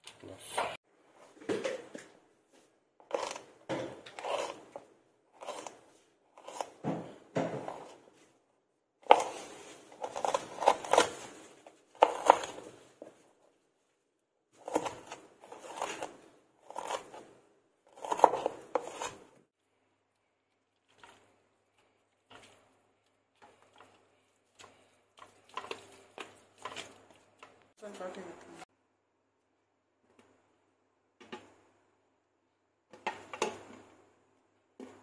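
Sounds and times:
knife chopping on cutting board: 0:09.0 - 0:11.3, 0:12.0 - 0:12.7, 0:14.6 - 0:17.3, 0:18.0 - 0:19.2.

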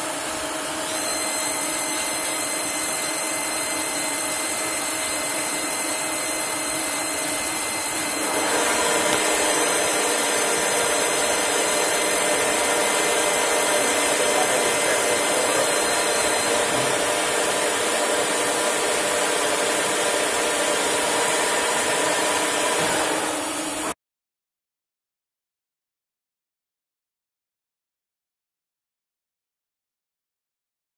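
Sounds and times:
lathe machine hum: 0:00.0 - 0:24.0
hiss of metal cutting: 0:00.2 - 0:23.9.

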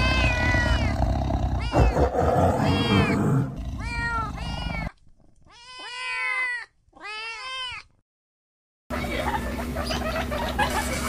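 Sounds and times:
lion cubs mewing: 0:00.0 - 0:06.4.

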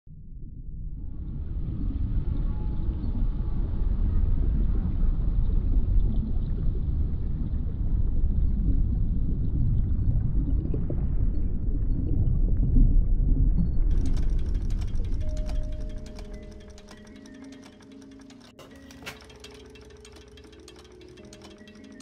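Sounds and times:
deep underwater rumble: 0:00.1 - 0:13.9.

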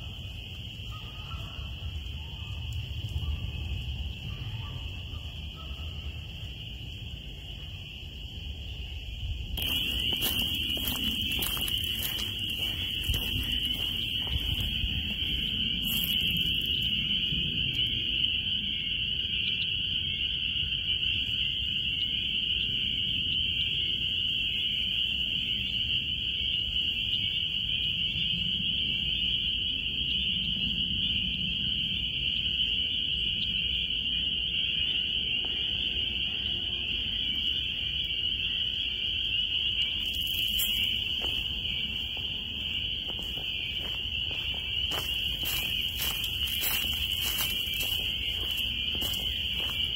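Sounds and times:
frogs calling: 0:00.0 - 0:49.9
footsteps in dry leaves: 0:09.6 - 0:16.8, 0:40.0 - 0:49.9.

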